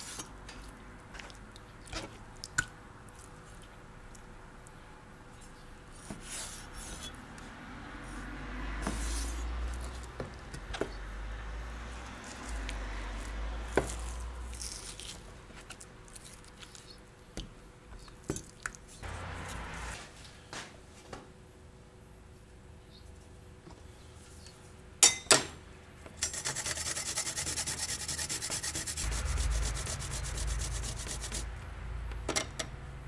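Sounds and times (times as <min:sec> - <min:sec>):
raw meat squishing: 0:12.3 - 0:17.5.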